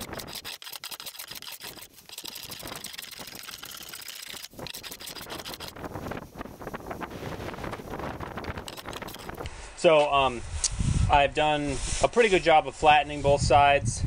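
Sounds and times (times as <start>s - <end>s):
hand plane rasping on wood: 0.0s - 3.1s, 4.0s - 5.7s.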